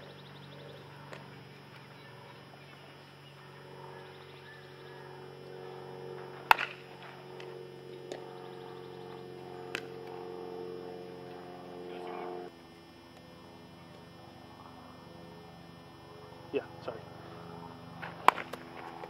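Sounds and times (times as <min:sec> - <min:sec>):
electrical hum: 0:00.0 - 0:19.0
bat striking baseball: 0:06.2 - 0:07.5, 0:09.7 - 0:09.9, 0:18.0 - 0:19.0.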